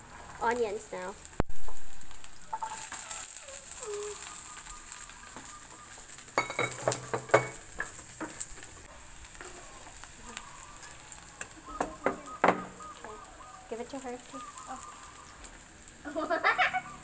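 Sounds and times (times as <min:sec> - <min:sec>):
vegetables sizzling in oil: 0:00.0 - 0:17.0.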